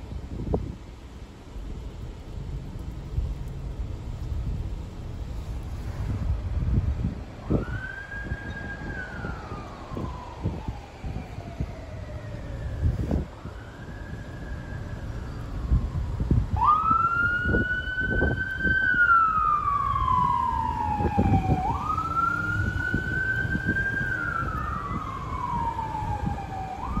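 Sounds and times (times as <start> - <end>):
ambulance siren wailing: 7.4 - 27.0.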